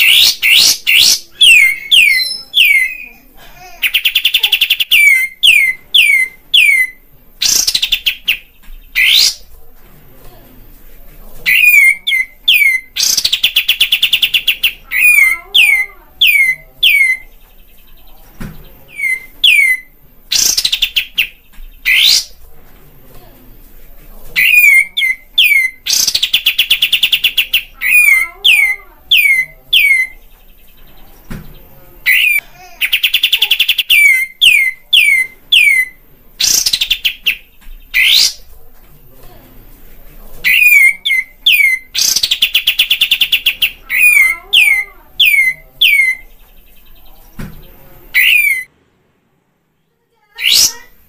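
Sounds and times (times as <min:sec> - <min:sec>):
bird song with trills and whistles: 0:00.0 - 0:03.2, 0:03.9 - 0:09.5, 0:11.5 - 0:17.9, 0:18.9 - 0:22.4, 0:24.4 - 0:30.8, 0:31.4 - 0:38.5, 0:40.5 - 0:48.7.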